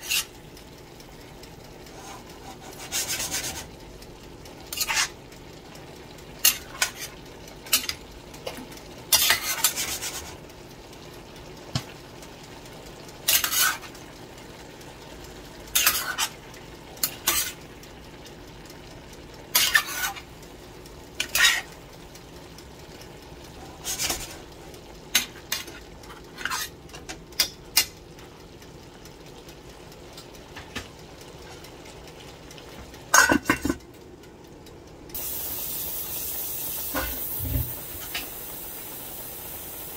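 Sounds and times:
tongs scraping and clinking pot: 0.0s - 0.6s, 1.8s - 18.2s, 19.4s - 29.3s, 30.2s - 33.9s
faint sizzle: 0.0s - 39.9s
metal pot lid clanking: 15.7s - 16.3s, 33.1s - 33.8s.

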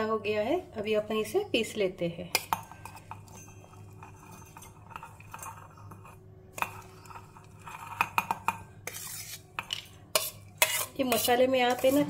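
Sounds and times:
spoon clinking on steel bowl: 2.3s - 6.9s.

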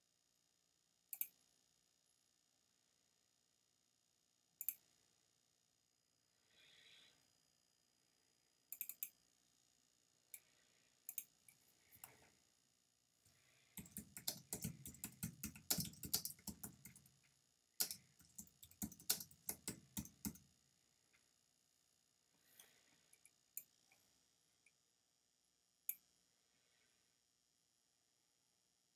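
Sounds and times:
typing on computer keyboard: 13.7s - 17.2s, 17.8s - 20.4s.

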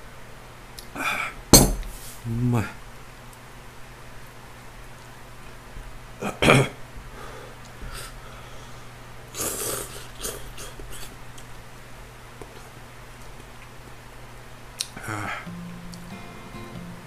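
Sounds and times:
loud noodle slurping: 9.3s - 11.1s.

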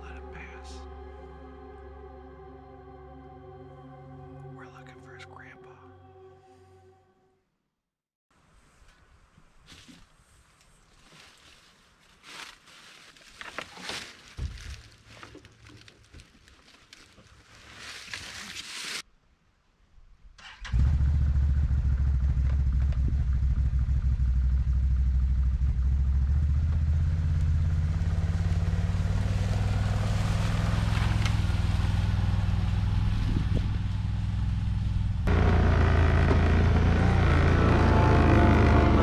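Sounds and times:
atv engine running: 20.7s - 39.0s.

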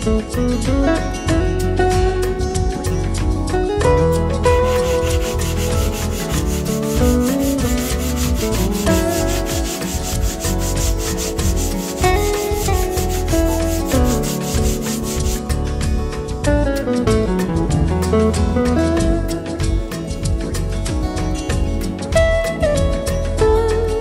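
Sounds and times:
guitar background music: 0.0s - 24.0s
sanding pad rubbing wood: 4.6s - 15.6s.

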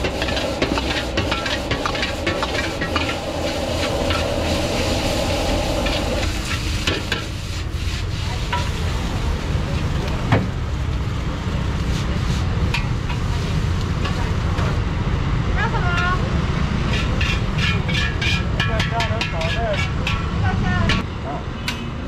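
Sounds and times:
metal ladle scraping in a wok: 0.0s - 8.9s, 12.2s - 14.3s, 16.8s - 21.0s
rice sizzling: 0.0s - 14.8s
gas burner rumble: 0.0s - 21.0s.

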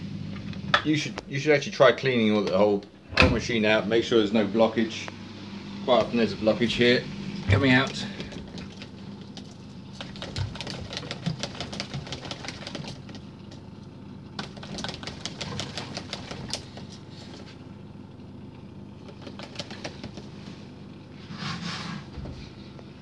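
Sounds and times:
drain pump humming: 0.0s - 23.0s
rapid clicking and rattling: 7.7s - 13.6s, 14.4s - 17.0s, 19.0s - 20.3s.

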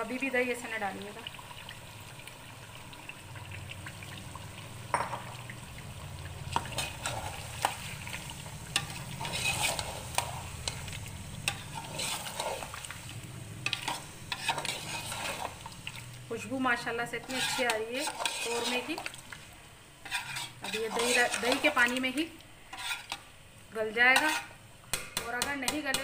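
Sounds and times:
light sizzling: 0.0s - 26.0s
spoon stirring and scraping in pot: 6.4s - 16.2s, 17.0s - 23.4s, 24.1s - 26.0s.

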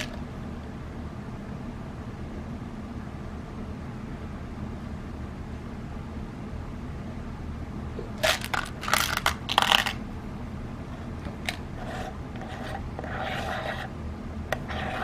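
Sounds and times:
pellets rattling in tin: 8.2s - 10.0s.

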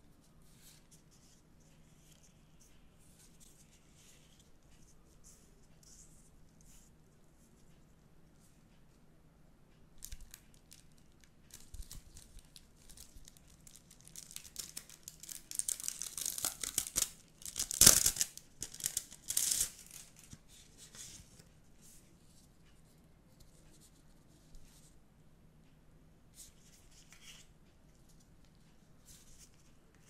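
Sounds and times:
plastic sleeve crinkling and ripping: 10.0s - 20.4s.

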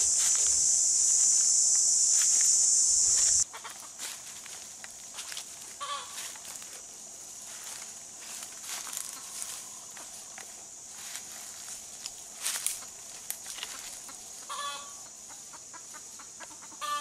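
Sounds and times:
dry leaves crackling underfoot: 0.0s - 14.7s
faint insect buzz: 0.0s - 17.0s
faint fowl calls: 5.8s - 6.3s, 13.6s - 17.0s
chicken clucking: 13.7s - 17.0s.

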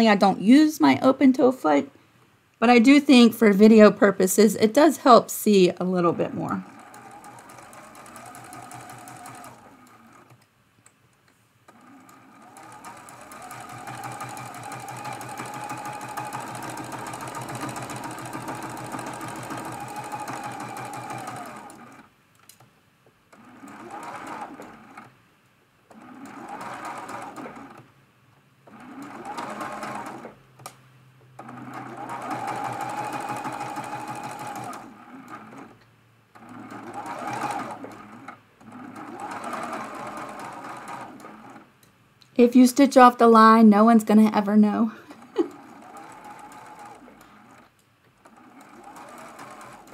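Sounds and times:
sewing machine stitching: 5.9s - 10.4s, 11.7s - 22.1s, 23.3s - 25.2s, 25.9s - 27.9s, 28.6s - 30.7s, 31.4s - 41.7s, 45.1s - 49.9s.

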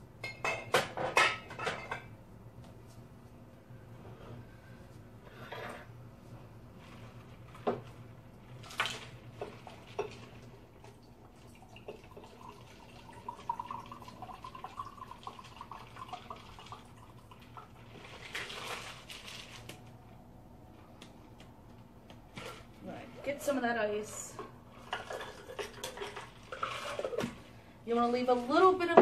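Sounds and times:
liquid pouring into glass: 10.8s - 17.7s.

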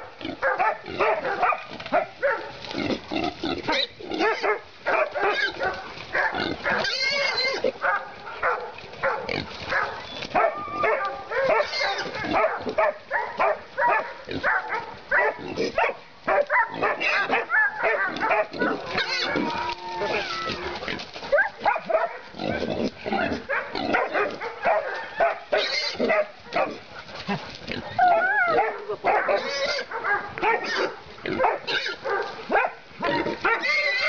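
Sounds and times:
dogs barking: 0.0s - 2.6s, 3.6s - 20.4s, 21.2s - 34.0s
boar squealing and grunting: 2.6s - 4.5s, 5.1s - 7.8s, 9.3s - 12.4s, 16.7s - 21.1s, 22.3s - 29.9s, 30.6s - 32.0s, 33.0s - 34.0s.

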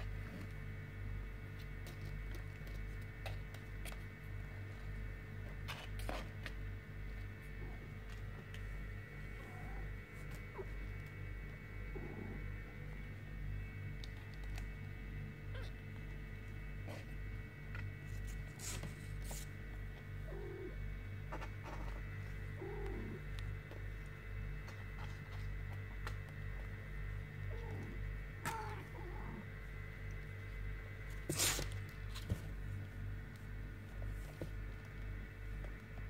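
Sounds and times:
low pulsing hum: 0.0s - 36.0s
paws scratching in cardboard box: 1.4s - 4.7s, 16.8s - 20.2s, 23.2s - 26.6s
kittens mewing: 27.5s - 29.5s.

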